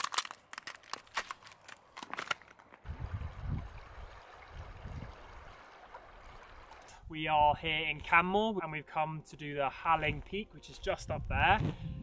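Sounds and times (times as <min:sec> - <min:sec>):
footsteps crunching on icy stones: 0:00.0 - 0:02.8
wind gusts on microphone: 0:02.8 - 0:05.5, 0:11.0 - 0:12.0.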